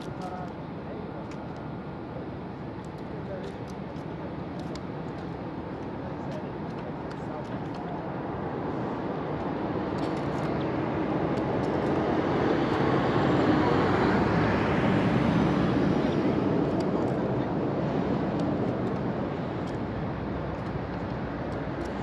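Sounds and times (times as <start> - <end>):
distant engine drone passing: 6.6 - 22.0.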